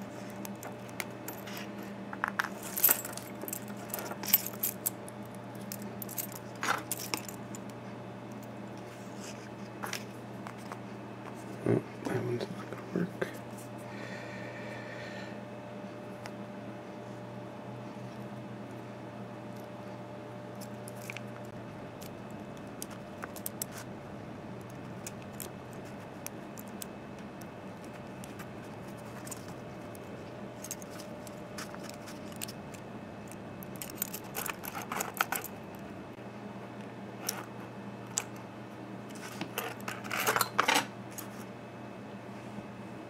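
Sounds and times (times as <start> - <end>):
steady low hum: 0.0 - 43.0
keys jingling on a ring: 2.4 - 5.0, 33.7 - 35.6.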